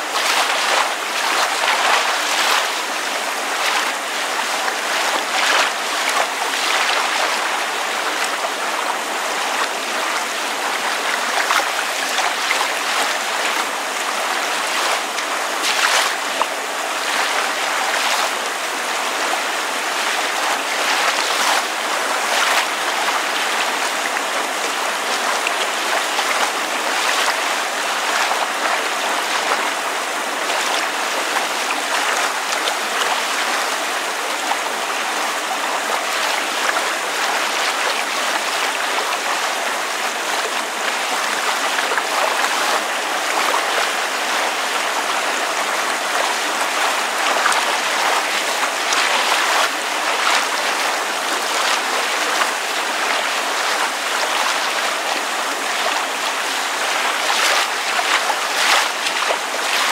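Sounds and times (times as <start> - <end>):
water lapping: 0.0 - 59.9
rain falling: 18.9 - 59.9.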